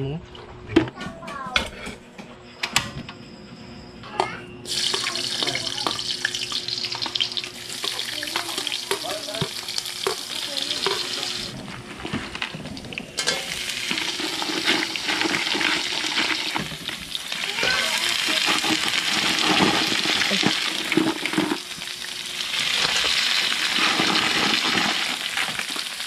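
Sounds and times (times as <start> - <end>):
food sizzling in hot oil: 4.7 - 26.0.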